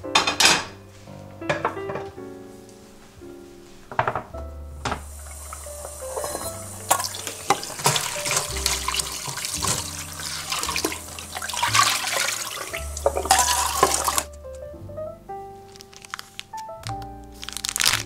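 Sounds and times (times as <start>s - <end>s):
background music: 0.0s - 18.0s
tap water splashing into strainer: 4.8s - 14.3s.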